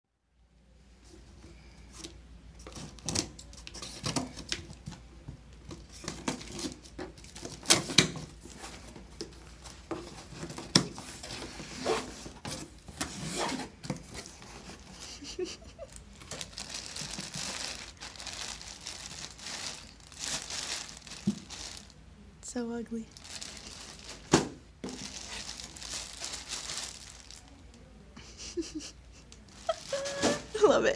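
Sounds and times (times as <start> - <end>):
packing tape tearing: 5.7 - 8.7, 15.9 - 21.9, 29.6 - 30.6
plastic bag crinkling: 5.7 - 22.0, 22.9 - 27.7, 29.5 - 30.8.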